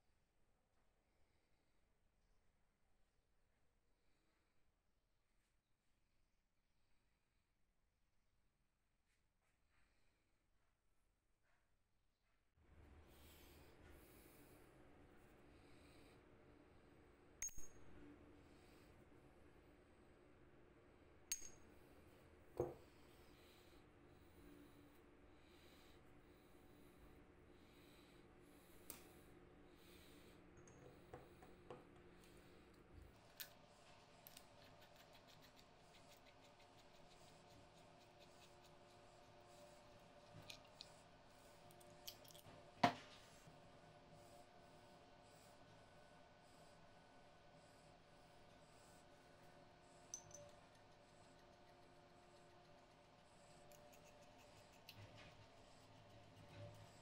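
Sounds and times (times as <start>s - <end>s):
ringing metal clink: 17.4s - 17.8s.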